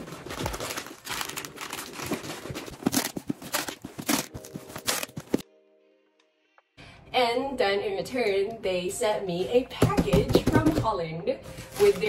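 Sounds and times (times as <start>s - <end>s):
plastic packaging crinkling: 0.0s - 5.4s, 11.4s - 12.0s.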